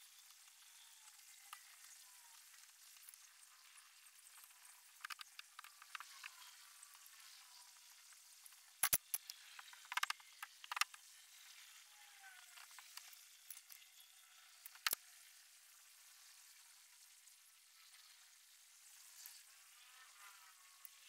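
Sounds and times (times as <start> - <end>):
steady crackling hiss: 0.0 - 21.0
small clicks: 4.3 - 7.1, 8.4 - 11.1, 12.3 - 13.9, 14.6 - 15.0.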